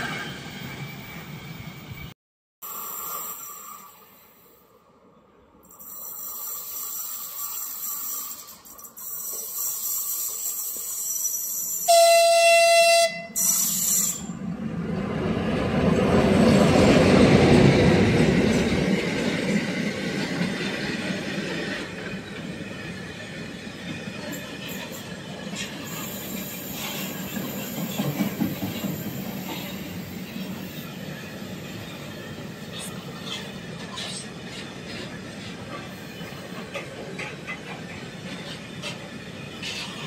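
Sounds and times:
locomotive horn blasts: 11.9s - 13.6s
train wheels rumbling on rails: 13.4s - 40.0s.

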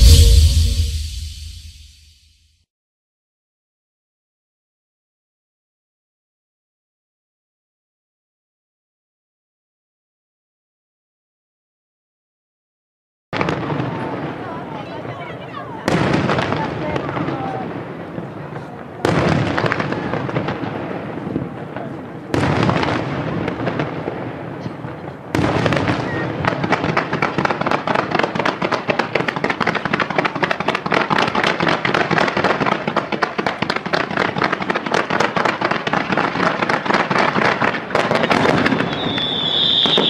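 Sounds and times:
rapid crackling of fireworks: 13.4s - 40.0s
firework shell bursts: 38.2s - 40.0s.

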